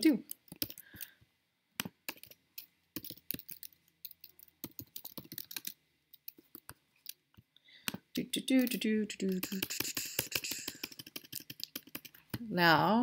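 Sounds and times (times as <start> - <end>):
computer keyboard typing: 0.3 - 1.1, 1.8 - 2.4, 3.0 - 7.2, 7.9 - 12.4.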